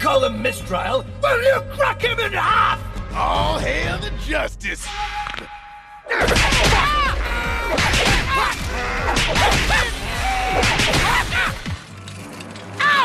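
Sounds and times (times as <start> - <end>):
music: 0.0 - 13.0
cartoon whacks and cracks: 6.2 - 6.9, 7.7 - 10.0, 10.6 - 11.8.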